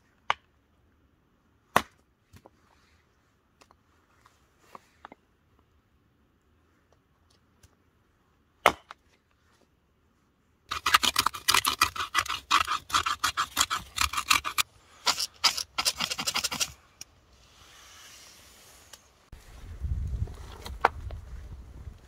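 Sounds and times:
knife scraping firewood: 0:10.7 - 0:19.1.

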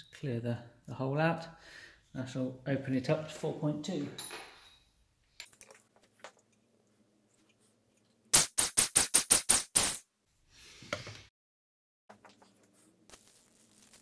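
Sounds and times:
sharp air blasts: 0:08.4 - 0:10.0.

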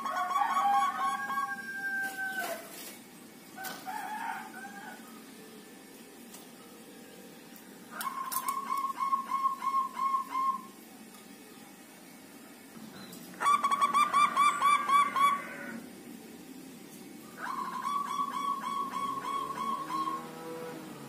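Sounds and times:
dove cooing: 0:00.0 - 0:02.8, 0:07.9 - 0:10.8, 0:13.4 - 0:15.9, 0:17.4 - 0:21.0.

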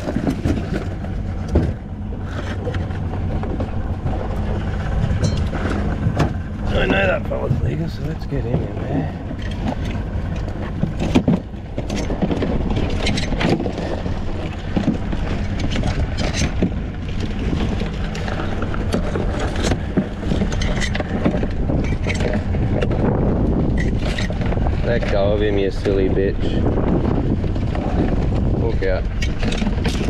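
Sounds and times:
knocks and rattles of crab pot: 0:00.0 - 0:01.8, 0:10.7 - 0:30.0
boat motor running: 0:00.0 - 0:30.0.

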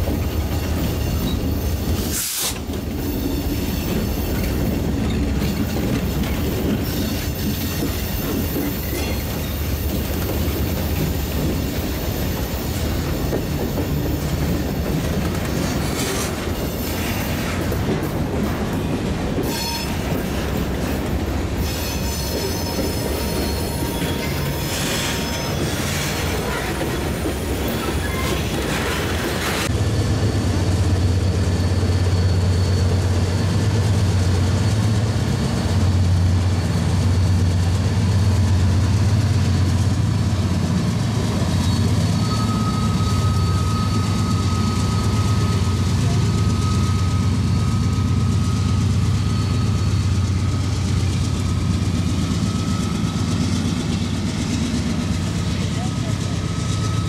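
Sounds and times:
diesel locomotive engine drone: 0:00.0 - 0:57.0
freight train rolling past: 0:00.0 - 0:57.0
wheel flange squeals: 0:19.4 - 0:20.4, 0:21.6 - 0:29.7, 0:41.4 - 0:54.4.

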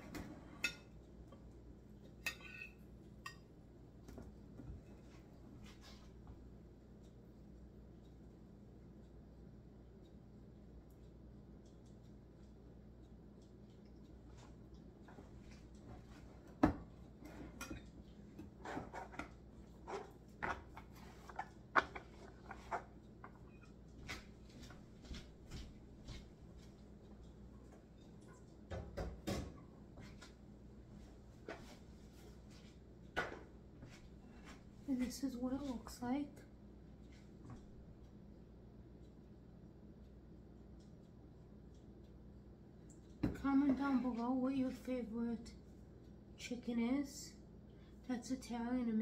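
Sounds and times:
utensils clinking on dishes: 0:02.2 - 0:03.4.

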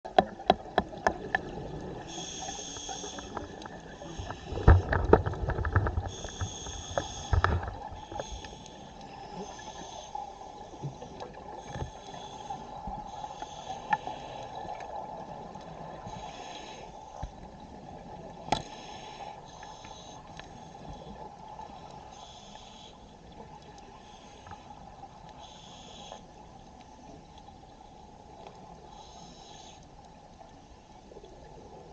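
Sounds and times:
underwater hum: 0:00.0 - 0:31.9
regulator breathing hiss: 0:02.0 - 0:04.7, 0:06.1 - 0:11.0, 0:11.6 - 0:14.6, 0:16.0 - 0:17.2, 0:18.6 - 0:21.2, 0:22.0 - 0:23.2, 0:23.9 - 0:24.8, 0:25.4 - 0:26.3, 0:28.8 - 0:29.9.

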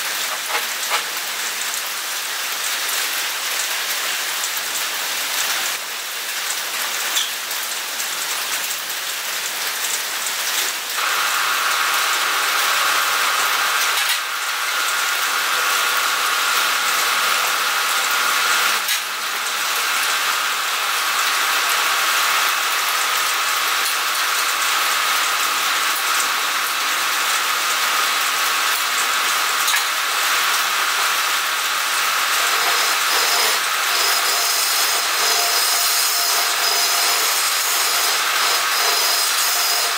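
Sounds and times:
tool cutting spinning wood: 0:00.0 - 0:01.6, 0:11.0 - 0:23.4, 0:27.7 - 0:39.9
rain-like hiss: 0:00.0 - 0:39.9
wood lathe whining: 0:32.2 - 0:39.9.

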